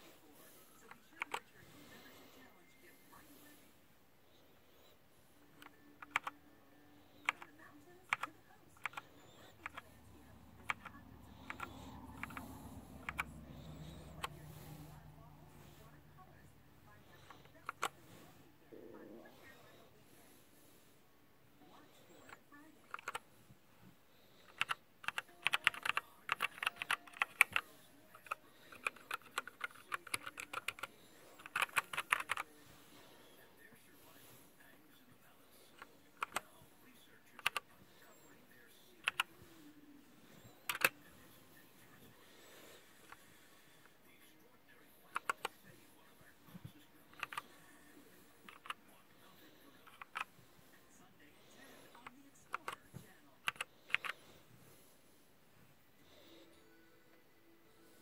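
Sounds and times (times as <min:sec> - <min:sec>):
mechanical keyboard keys clacking: 0:06.0 - 0:06.3, 0:07.2 - 0:07.5, 0:08.1 - 0:09.0, 0:09.6 - 0:09.8, 0:10.6 - 0:12.4, 0:13.0 - 0:13.3, 0:22.9 - 0:23.2, 0:24.5 - 0:32.4, 0:39.0 - 0:39.3, 0:40.7 - 0:40.9, 0:47.2 - 0:47.4.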